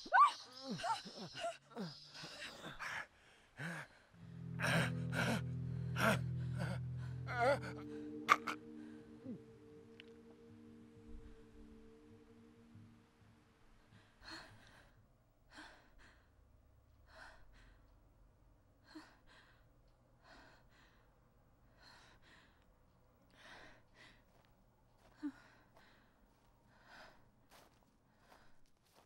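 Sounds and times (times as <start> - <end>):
person breathing heavily: 0.8 - 9.4.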